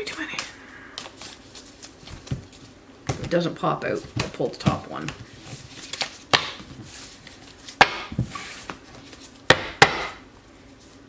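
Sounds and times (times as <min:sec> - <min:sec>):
cards sliding rustle: 0:00.0 - 0:02.7, 0:05.0 - 0:09.4
cards tapping: 0:05.8 - 0:06.7.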